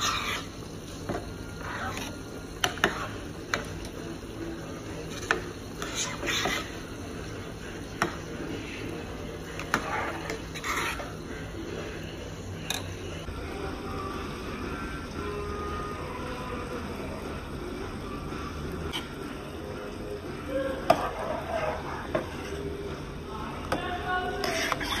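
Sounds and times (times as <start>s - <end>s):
spoon scraping a metal pot: 0.0s - 3.8s, 5.0s - 6.9s, 9.4s - 11.2s, 24.4s - 25.0s
steady low hum: 0.0s - 25.0s.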